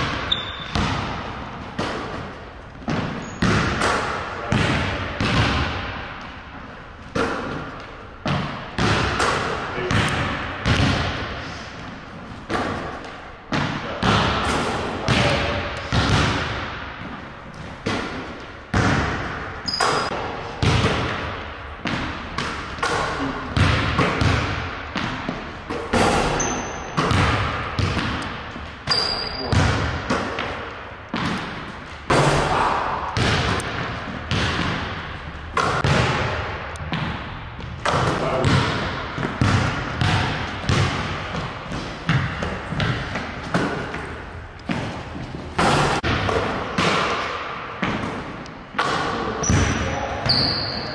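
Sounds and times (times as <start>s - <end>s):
basketball bouncing on hardwood floor: 0.0s - 2.2s, 2.8s - 3.9s, 9.9s - 11.3s, 20.6s - 21.2s, 23.6s - 25.4s, 26.4s - 31.6s, 33.2s - 35.0s, 35.6s - 44.9s
shoe squeaks: 0.2s - 0.8s, 3.2s - 3.5s, 19.6s - 20.1s, 26.0s - 27.0s, 28.9s - 29.5s, 49.4s - 50.9s.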